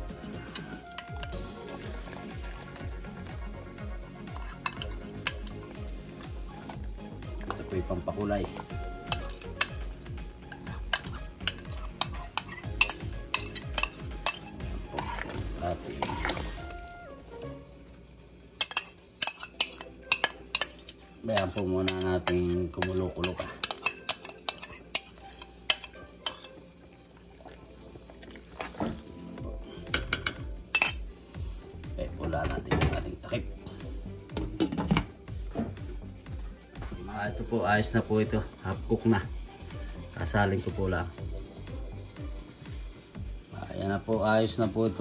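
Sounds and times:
spoon scraping ceramic bowl: 4.3s - 5.7s, 9.0s - 15.4s, 18.6s - 26.6s, 29.9s - 31.0s.

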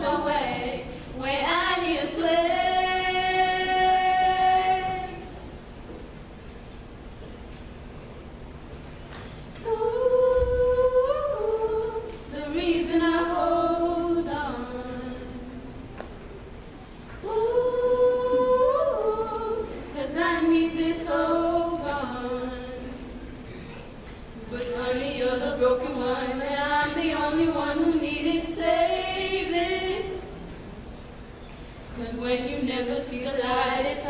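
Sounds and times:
women singing a cappella: 0.0s - 5.4s, 9.6s - 15.8s, 17.2s - 23.3s, 24.4s - 30.6s, 31.8s - 34.0s.

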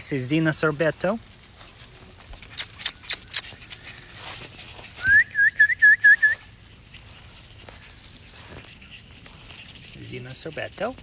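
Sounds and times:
person whistling: 5.0s - 6.4s.

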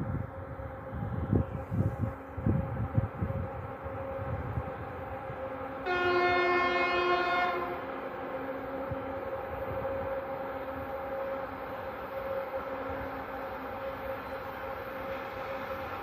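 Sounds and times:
diesel locomotive engine drone: 0.0s - 16.0s
train horn blast: 5.7s - 8.1s.

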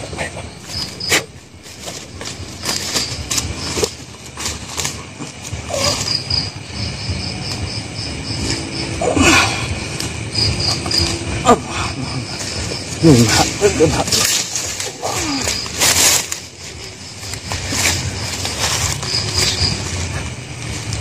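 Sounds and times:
crickets chirping: 0.0s - 21.0s
clicks and rustles: 0.2s - 6.2s, 13.2s - 21.0s.

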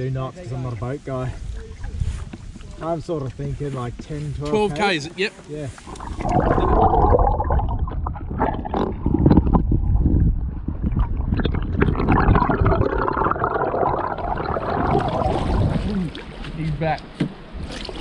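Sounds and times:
knocks against canoe: 16.4s - 18.0s.

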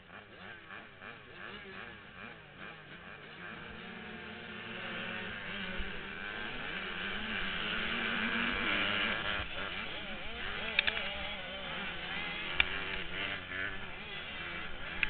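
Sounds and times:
dirt bike engine at full throttle: 0.0s - 15.0s
other two-stroke bikes running: 0.0s - 15.0s
sharp clicks: 10.6s - 11.1s, 12.5s - 13.1s.

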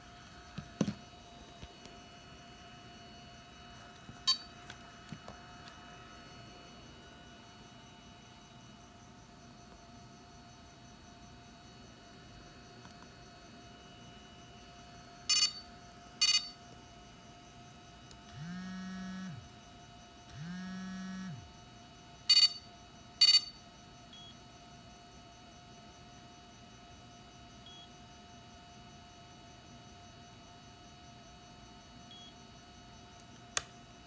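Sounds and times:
faint electronic hum: 0.0s - 34.0s
short electronic beeps: 4.3s - 4.5s
low electronic buzzes sliding in pitch: 18.3s - 19.5s, 20.4s - 21.5s.

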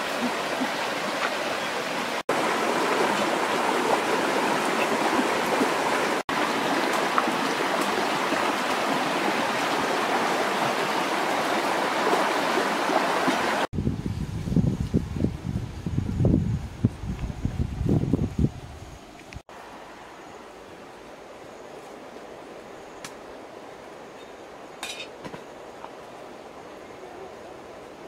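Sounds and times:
stream water rushing: 0.0s - 13.7s, 19.2s - 28.0s.

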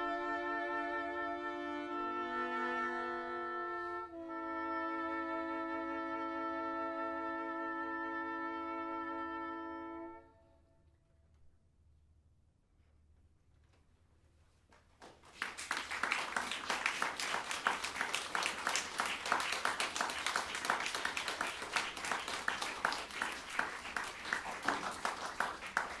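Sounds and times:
audience applauding: 15.0s - 26.0s.

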